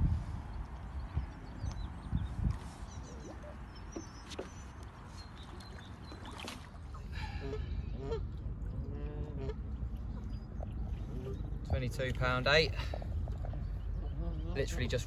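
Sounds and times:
wind rumbling on microphone: 0.0 - 4.2.

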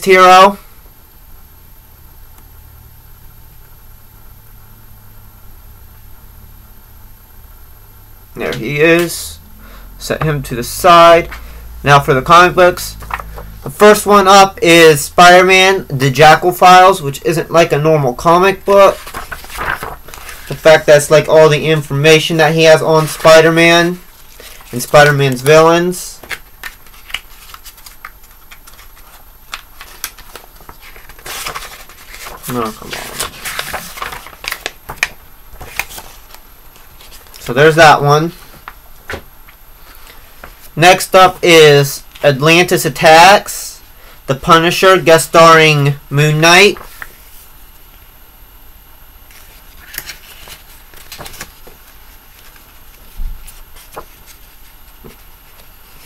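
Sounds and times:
low hum: 0.6 - 13.8
paper pages rustling: 12.9 - 13.5, 18.2 - 37.7, 38.3 - 40.7, 46.6 - 47.5, 49.3 - 56.0.

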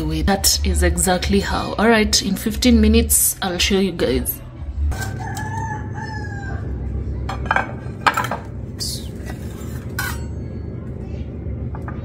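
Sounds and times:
steady low hum: 0.0 - 12.0
pans and utensils clinking: 7.3 - 8.6, 9.2 - 10.6.

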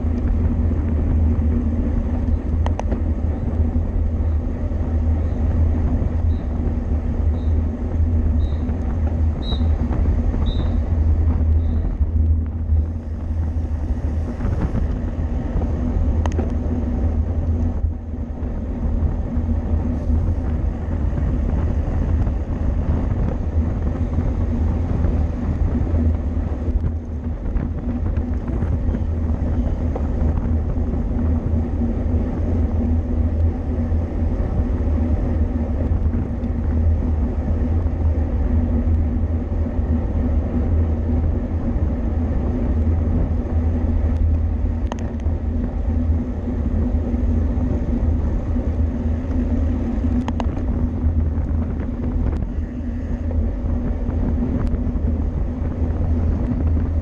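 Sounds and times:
bicycle road noise: 0.0 - 57.0
wind rumble: 0.0 - 57.0.

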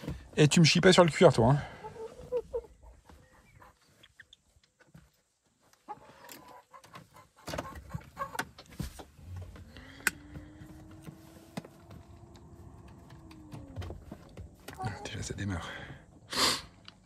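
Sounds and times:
hen clucking softly: 1.7 - 4.5, 5.8 - 8.4
car electrics humming: 9.2 - 15.9.

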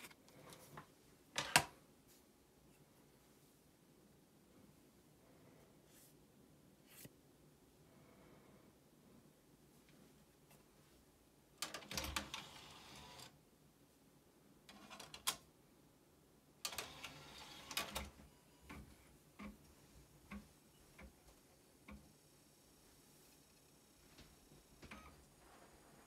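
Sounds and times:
disc tray motor: 11.9 - 13.3, 16.7 - 18.1.

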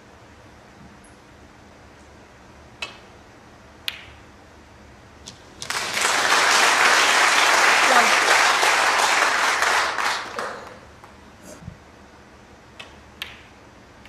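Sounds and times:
snooker balls clicking: 3.8 - 4.2, 12.7 - 13.6
audience applause: 5.6 - 10.9.

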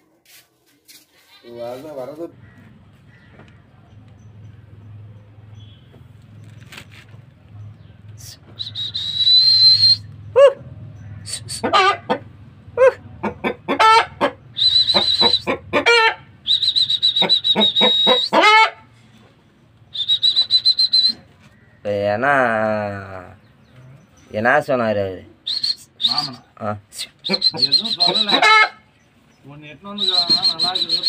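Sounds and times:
chickens clucking: 11.3 - 16.3, 17.2 - 19.4, 27.2 - 29.0
high whistle-like notes: 14.6 - 15.5, 27.3 - 28.4, 30.0 - 31.0.

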